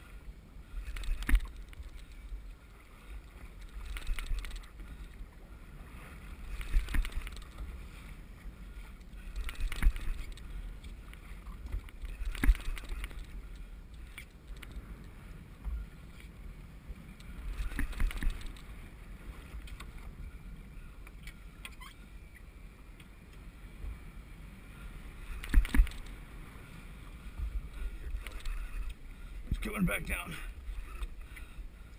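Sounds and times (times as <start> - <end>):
waves slapping against boat hull: 0.8 - 5.3, 5.9 - 8.1, 8.9 - 14.9, 17.4 - 20.0, 25.1 - 29.9.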